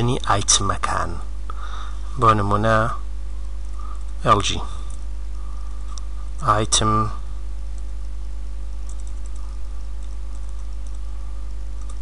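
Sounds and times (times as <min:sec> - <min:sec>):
low electrical hum: 0:00.0 - 0:12.0
keyboard typing: 0:08.8 - 0:11.0, 0:11.8 - 0:12.0.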